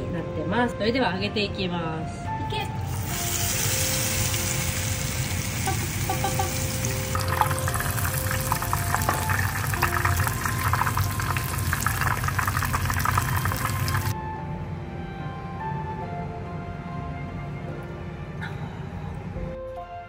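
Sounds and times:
batter deep-frying in oil: 0:02.9 - 0:14.2.

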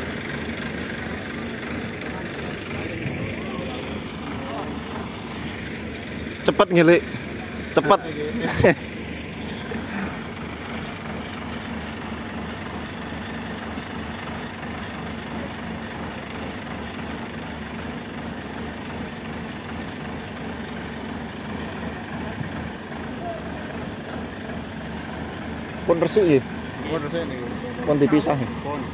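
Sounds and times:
harvester diesel engine running: 0:00.0 - 0:28.9.

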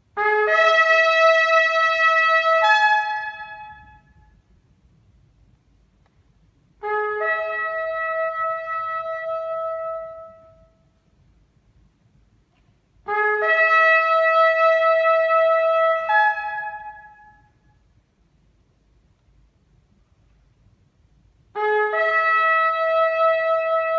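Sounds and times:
shofar blasts: 0:00.1 - 0:04.5, 0:06.8 - 0:11.0, 0:13.0 - 0:17.9, 0:21.5 - 0:23.9.

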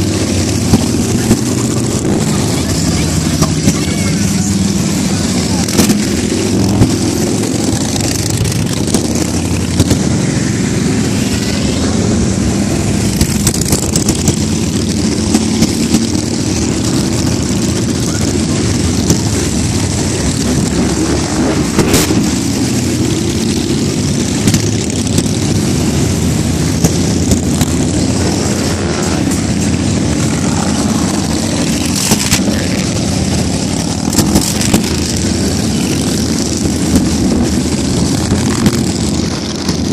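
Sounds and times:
motorcycles rumbling past: 0:00.0 - 0:39.9
sharp engine cracks: 0:05.6 - 0:10.2, 0:26.6 - 0:39.9.

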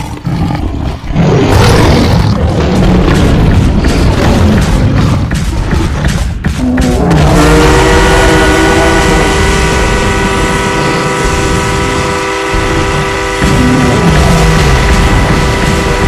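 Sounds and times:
low rumble: 0:00.0 - 0:16.0
train whistle chord: 0:07.2 - 0:16.0.

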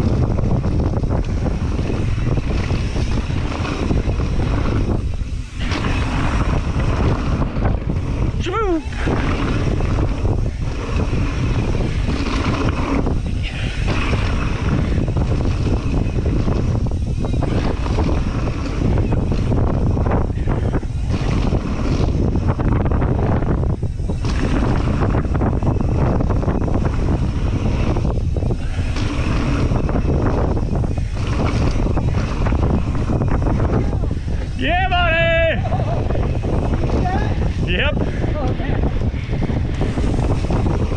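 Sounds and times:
bike rattling over bumps: 0:00.0 - 0:40.9
bike tyres rumbling on dirt: 0:00.0 - 0:40.9
wind buffeting microphone: 0:00.0 - 0:40.9.

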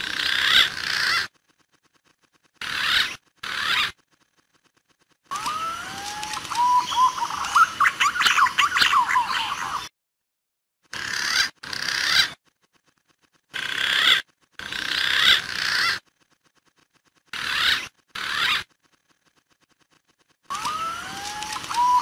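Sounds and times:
pigeon warbling calls: 0:00.0 - 0:01.4, 0:02.6 - 0:04.0, 0:05.3 - 0:09.9, 0:10.9 - 0:12.4, 0:13.5 - 0:16.1, 0:17.3 - 0:18.8, 0:20.5 - 0:22.0.

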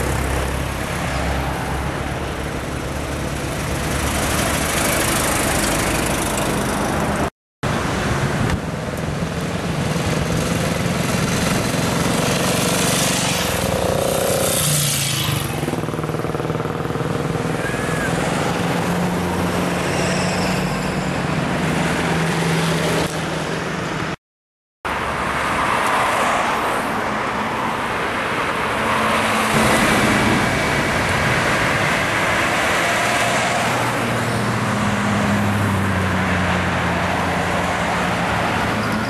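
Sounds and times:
road traffic noise: 0:00.0 - 0:24.2, 0:24.8 - 0:39.0
cars driving past: 0:24.9 - 0:39.0.

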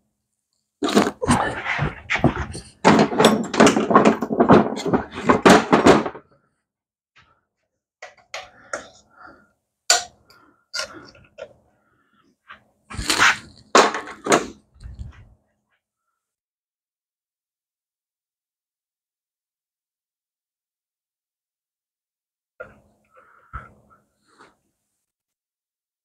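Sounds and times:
tools clattering and knocking: 0:01.4 - 0:06.3, 0:08.0 - 0:09.0, 0:09.9 - 0:10.2.

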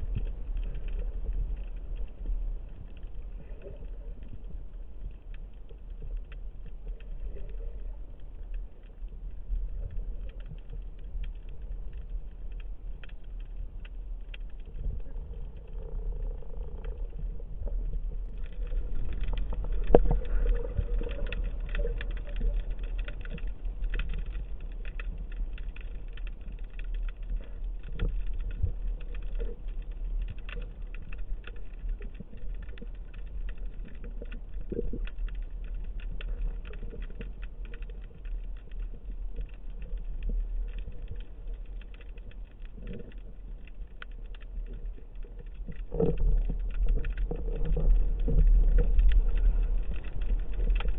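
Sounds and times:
crackle of tiny underwater clicks: 0:00.0 - 0:50.9
low rumble of moving water: 0:00.0 - 0:50.9.

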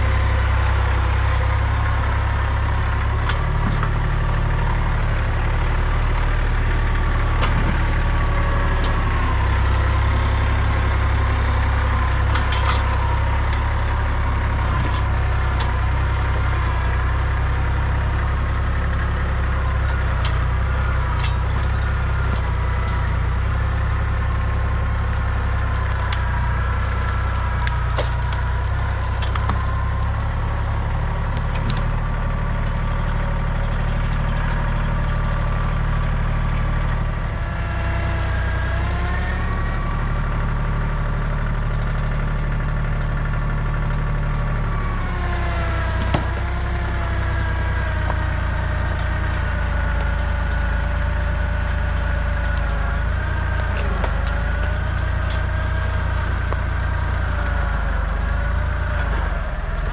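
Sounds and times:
tractor diesel engine running: 0:00.0 - 0:59.9
branches snapping: 0:21.3 - 0:33.3, 0:46.0 - 0:46.6, 0:53.4 - 0:57.5.

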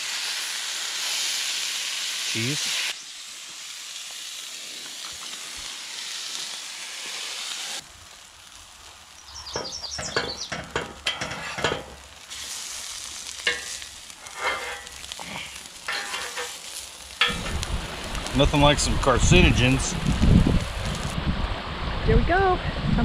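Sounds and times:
food sizzling on a griddle: 0:00.0 - 0:21.2
metal spatula scraping griddle: 0:09.5 - 0:17.6.

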